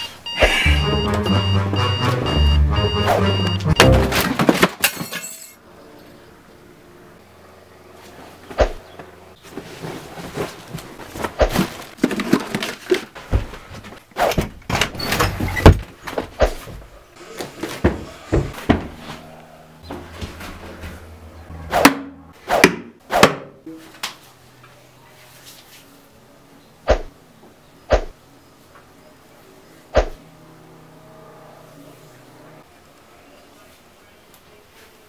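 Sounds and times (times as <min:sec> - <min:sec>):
knocks and thuds of handling objects: 0:17.6 - 0:19.0.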